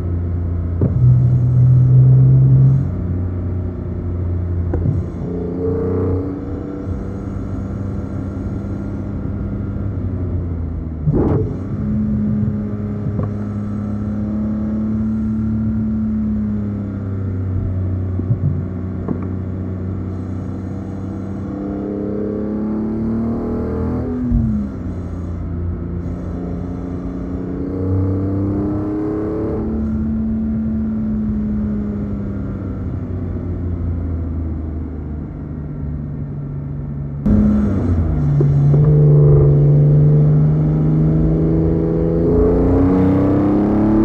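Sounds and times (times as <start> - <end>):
car engine accelerating: 0.0 - 35.8, 37.2 - 44.0
short thump: 18.2 - 19.4
car engine pulling: 37.3 - 44.0.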